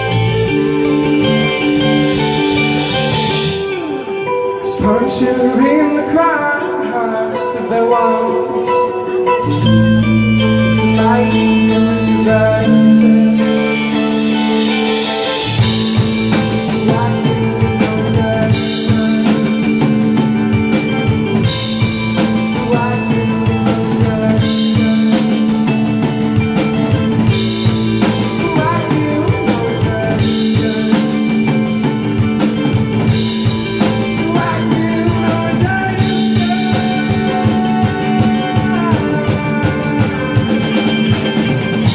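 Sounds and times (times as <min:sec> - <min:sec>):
live rock band playing: 0:00.0 - 0:41.9.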